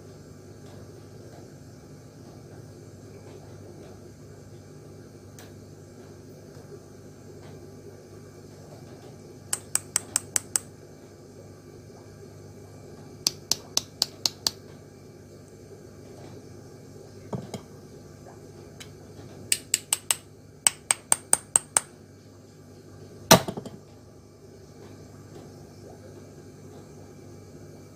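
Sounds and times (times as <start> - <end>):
metal can tapped clicking: 9.6 - 10.7, 19.5 - 21.9.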